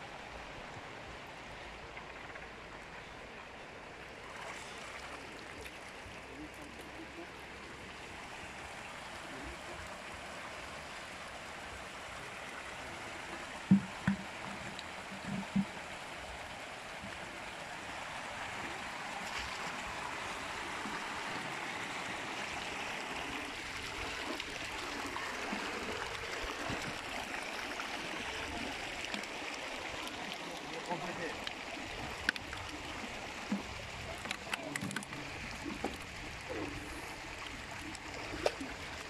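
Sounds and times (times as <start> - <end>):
water pouring into concrete channel: 17.5 - 39.0.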